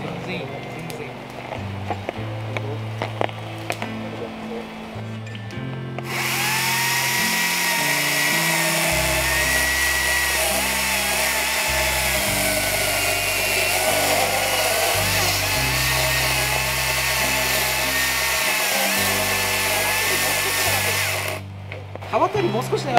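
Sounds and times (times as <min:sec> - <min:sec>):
electric chainsaw cutting log: 0:06.0 - 0:21.4.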